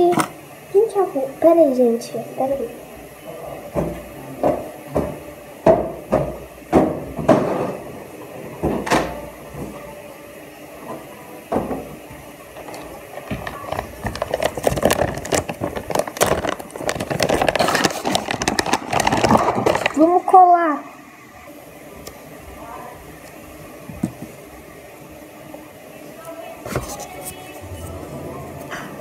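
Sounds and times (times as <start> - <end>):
fast rustling of materials: 13.2 - 20.1.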